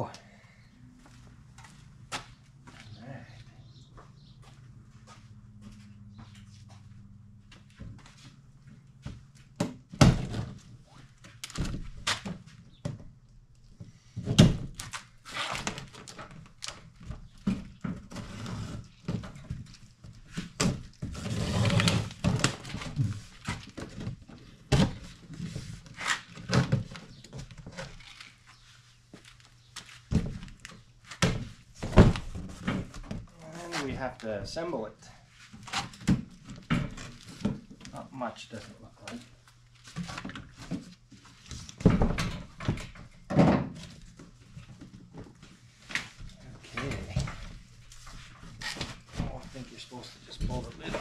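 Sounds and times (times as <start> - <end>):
objects knocking and clattering: 41.8 - 45.4.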